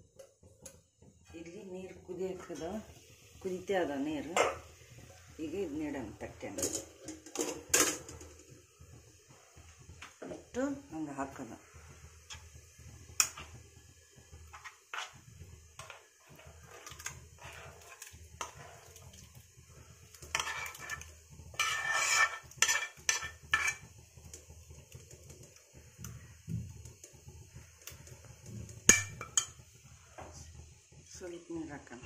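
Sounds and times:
spoon scraping and clinking on pan: 0:13.2 - 0:13.6, 0:14.5 - 0:15.2, 0:15.8 - 0:19.1, 0:20.2 - 0:23.9, 0:28.8 - 0:29.6.

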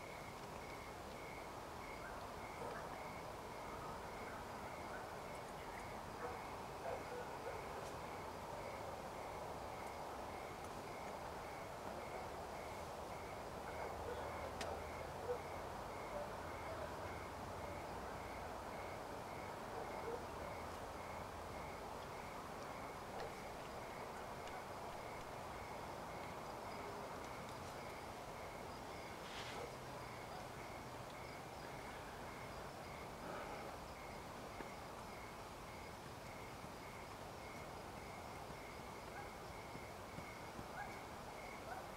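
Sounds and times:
faint steady hiss: 0:00.0 - 0:41.9
small scattered ticks: 0:19.9 - 0:41.9.

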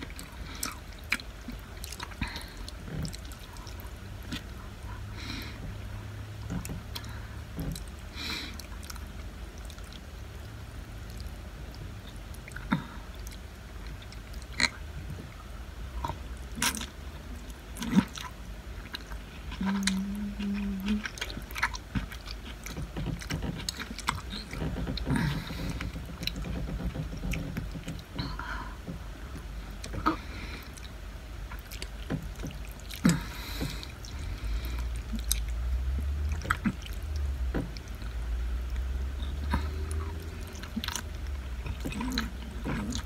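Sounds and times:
steady low hum: 0:00.0 - 0:43.0
person chewing and slurping: 0:16.0 - 0:28.2, 0:28.8 - 0:43.0.

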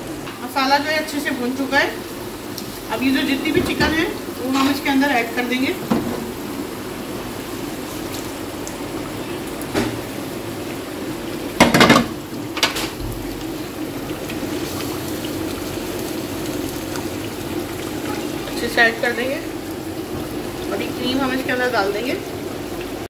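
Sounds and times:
thick gravy bubbling: 0:01.0 - 0:23.0
pan and spatula clattering: 0:11.6 - 0:13.0.

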